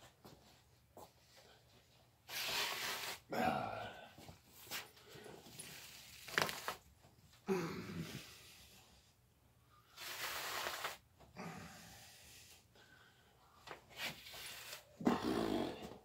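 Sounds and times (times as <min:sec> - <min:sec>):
man grunting: 0:03.3 - 0:04.2, 0:07.5 - 0:08.3, 0:15.0 - 0:16.0
man breathing heavily: 0:03.3 - 0:05.6, 0:07.4 - 0:10.0, 0:11.3 - 0:14.4.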